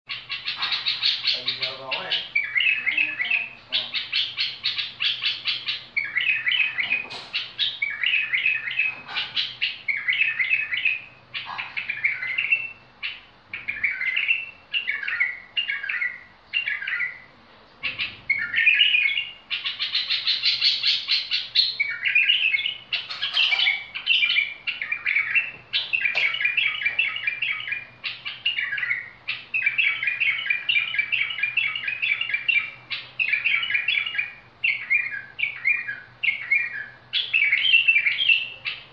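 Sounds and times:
bird singing rapid chirps: 0:00.1 - 0:38.9.

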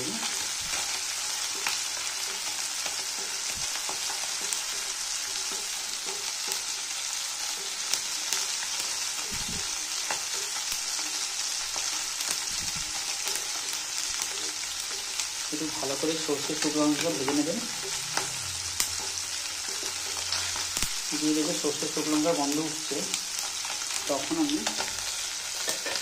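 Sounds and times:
oil sizzling: 0:00.0 - 0:26.0
spatula stirring in pan: 0:23.2 - 0:26.0.

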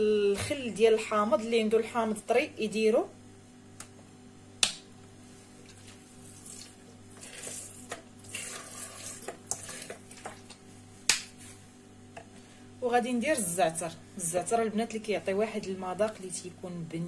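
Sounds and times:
liquid pouring into plastic bowl: 0:05.7 - 0:10.6.

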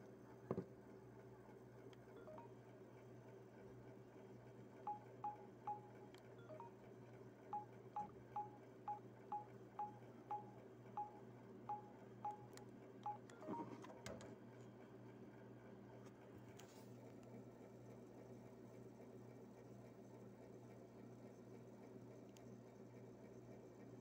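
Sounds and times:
phone keypad beeps: 0:02.2 - 0:02.5, 0:04.9 - 0:06.8, 0:07.6 - 0:13.8.

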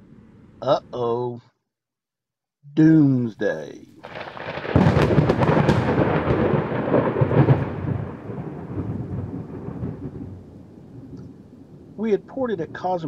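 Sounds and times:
thunder rumbling: 0:04.0 - 0:13.0.

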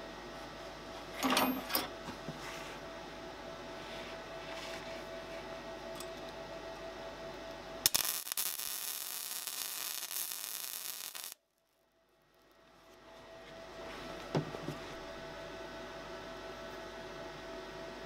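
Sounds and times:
arc welding crackling and hissing: 0:07.8 - 0:11.4
welding arc striking crack: 0:07.8 - 0:11.4.

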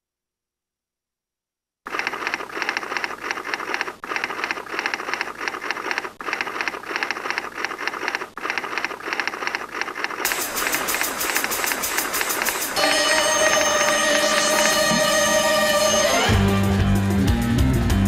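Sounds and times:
rapid mechanical clatter of clicks: 0:01.9 - 0:14.8.

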